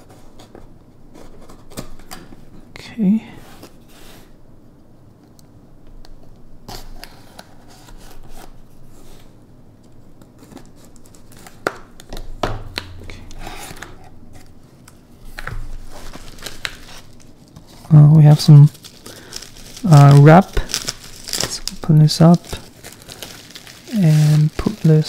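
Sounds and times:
bubble wrap rustling: 10.2s - 25.0s.

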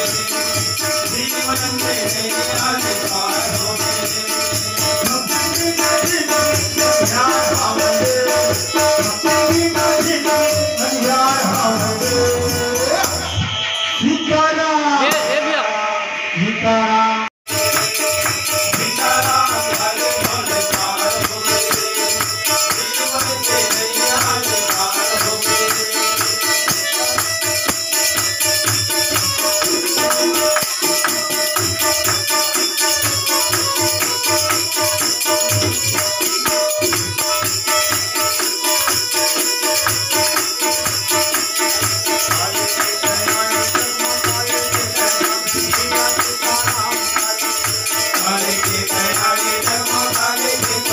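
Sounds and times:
hand cymbals jingling: 0.0s - 14.0s, 17.5s - 50.9s
harmonium chords: 0.0s - 15.9s, 17.5s - 50.9s
hand drum beat: 17.5s - 50.9s.

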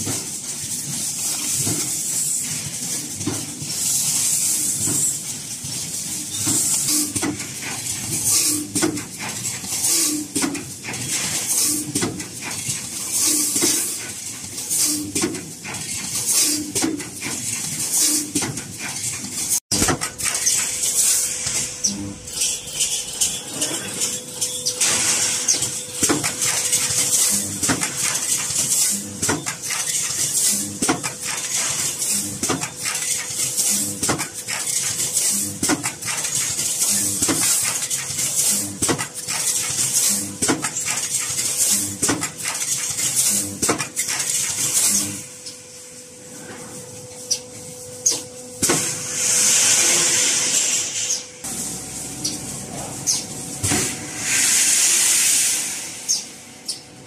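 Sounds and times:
welding machine metallic clank: 0.0s - 45.3s
steady electrical hum: 0.0s - 57.0s
loud hiss of air: 48.6s - 51.9s, 53.6s - 56.4s.

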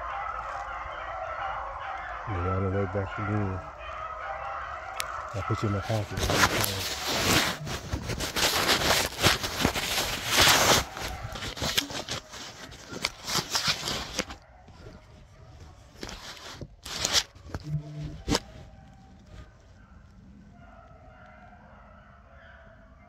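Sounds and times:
microphone rubbing against clothing: 5.1s - 19.8s.

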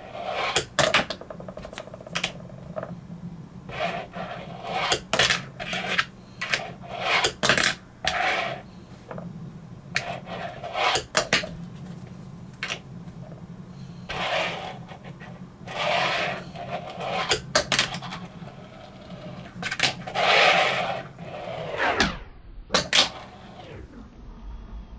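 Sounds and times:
fingerboard rolling on a desk: 0.0s - 3.0s, 3.7s - 9.3s, 9.9s - 22.1s, 22.8s - 23.7s
steady low hum: 0.0s - 24.9s.

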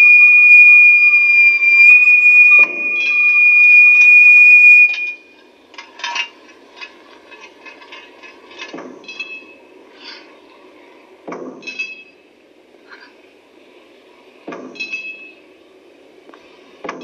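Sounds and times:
high whistle-like tone: 0.0s - 5.3s.

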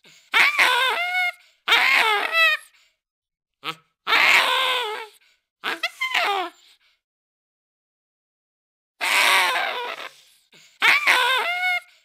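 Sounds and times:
baboon screaming: 0.3s - 2.7s, 3.6s - 6.5s, 9.0s - 10.2s, 10.8s - 11.9s.

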